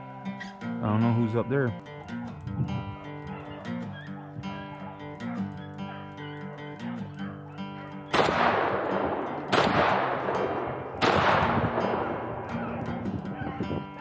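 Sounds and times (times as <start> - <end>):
acoustic guitar music: 0.0 - 14.0
shotgun shots: 8.1 - 13.3.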